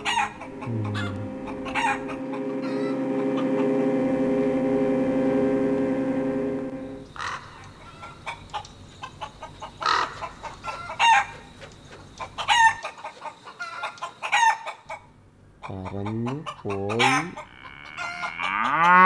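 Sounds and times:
chickens clucking: 0.0 - 3.5, 7.3 - 18.9.

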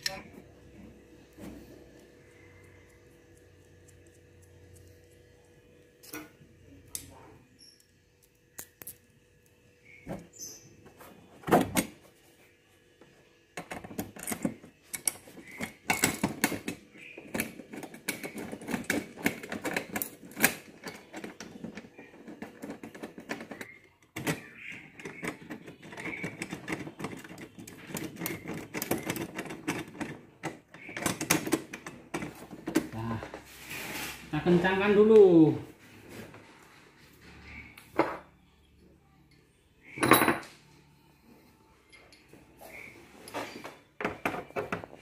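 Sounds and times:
bolts and washers clicking and rattling: 13.6 - 32.9.

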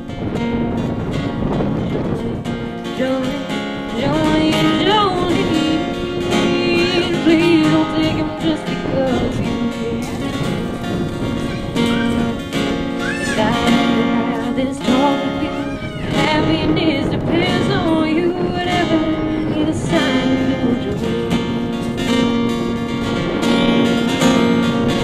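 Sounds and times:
acoustic guitar strummed: 0.0 - 25.0
woman singing: 1.9 - 10.9, 11.8 - 22.8.

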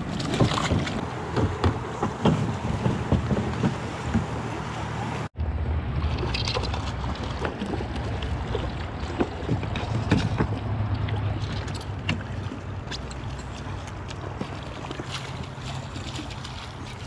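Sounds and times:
splashes and knocks: 0.0 - 5.3, 6.0 - 17.0.

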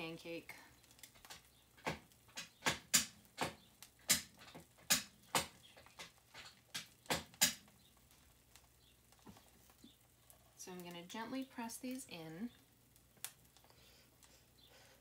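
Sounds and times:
hot oil popping and spitting: 0.0 - 15.0.

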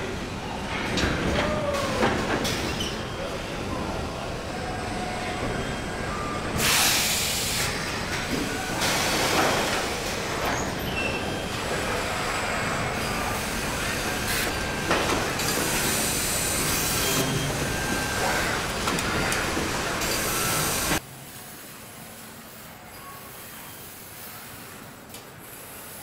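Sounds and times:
industrial machinery din: 0.0 - 21.0
pneumatic hisses: 6.6 - 7.8.

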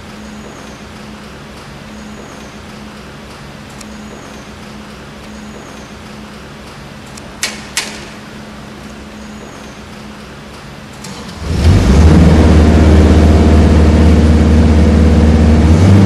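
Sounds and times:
steady low hum: 0.0 - 16.0
welding electrode tapping metal: 7.1 - 8.2.

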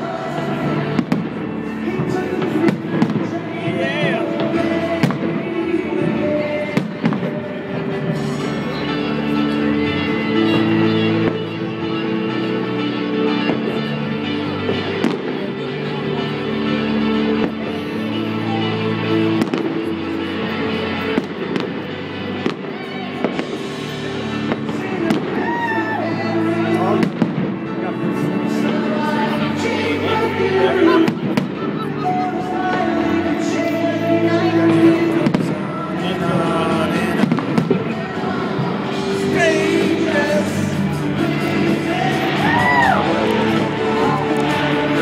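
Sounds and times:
music playing: 0.0 - 45.0
fireworks bangs: 0.9 - 3.4, 37.2 - 37.9.

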